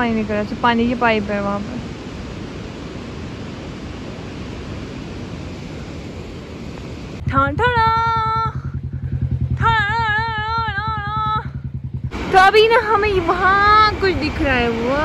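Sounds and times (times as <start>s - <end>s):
motorcycle engine idling: 7.2s - 15.0s.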